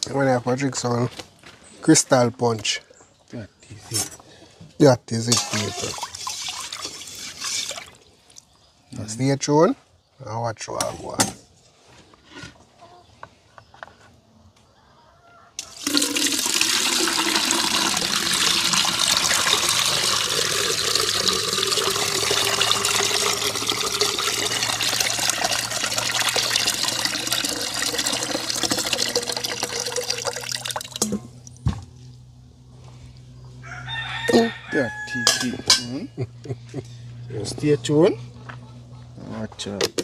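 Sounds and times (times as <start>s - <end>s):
water running in a stream: 5.4s - 8.1s, 15.6s - 31.2s.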